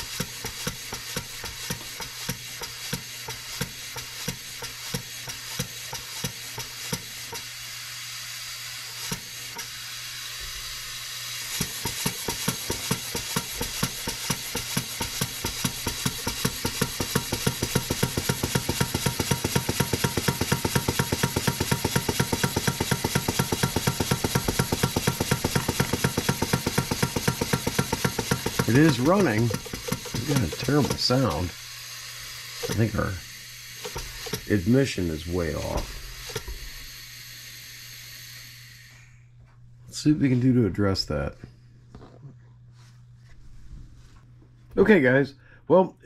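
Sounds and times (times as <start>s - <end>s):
model engine beats: 0.0s - 7.4s, 11.4s - 36.5s
compressed air hissing: 0.0s - 39.1s.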